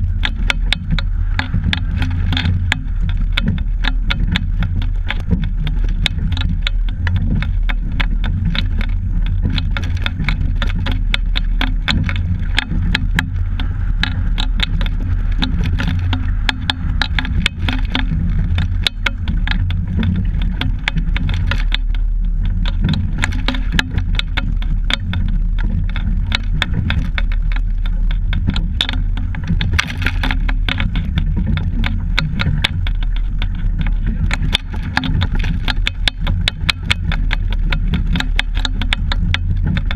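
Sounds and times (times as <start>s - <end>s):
low hull rumble: 0.0s - 39.9s
rapid clicking and rattling: 0.0s - 39.9s.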